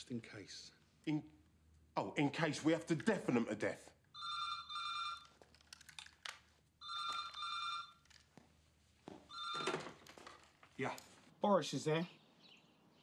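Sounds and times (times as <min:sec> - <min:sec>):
telephone ringing: 0:04.1 - 0:05.4, 0:06.8 - 0:08.2, 0:09.3 - 0:10.4.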